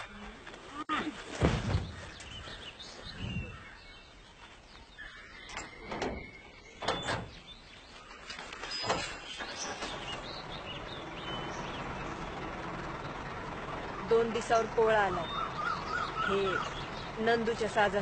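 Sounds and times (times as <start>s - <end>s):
birds chirping: 0.0s - 18.0s
dull thumps and knocks: 1.3s - 2.2s.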